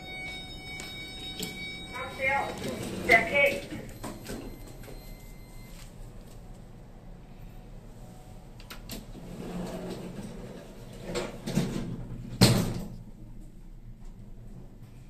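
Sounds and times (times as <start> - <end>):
elevator door sliding shut: 2.4 - 4.5, 8.8 - 12.9.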